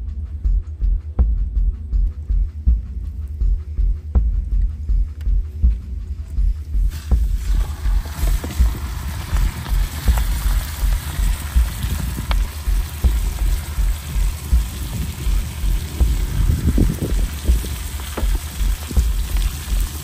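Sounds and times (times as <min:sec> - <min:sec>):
low uneven rumble: 0:00.1 - 0:20.0
fire crackles: 0:06.6 - 0:20.0
food sizzling in a frying pan: 0:06.9 - 0:20.0.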